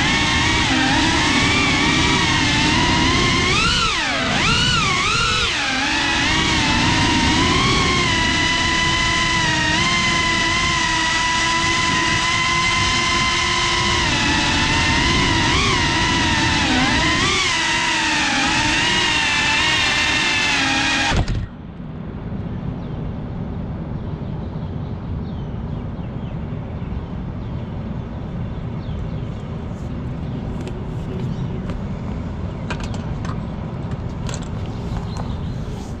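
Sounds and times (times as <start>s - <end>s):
drone motors whining: 0.0s - 21.9s
city traffic rumble: 21.3s - 36.0s.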